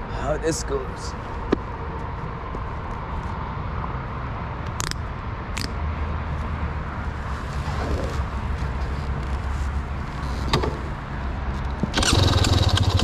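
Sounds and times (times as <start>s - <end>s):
two-stroke engine idling: 12.0s - 13.0s.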